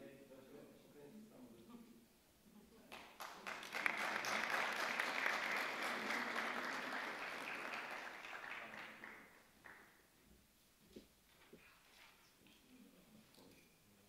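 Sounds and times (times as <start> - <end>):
audience applauding: 2.9 - 9.9.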